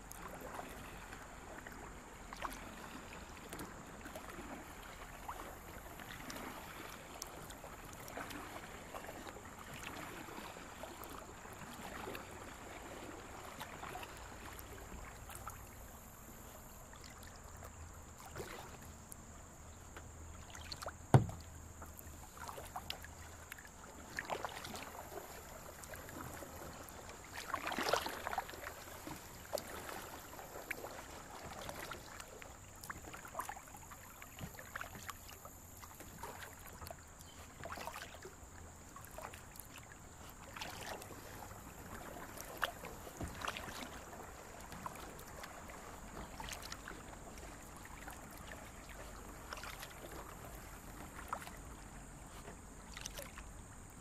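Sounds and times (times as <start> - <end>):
paddle strokes splashing water: 0.0 - 54.0
sharp knock: 21.1 - 21.4.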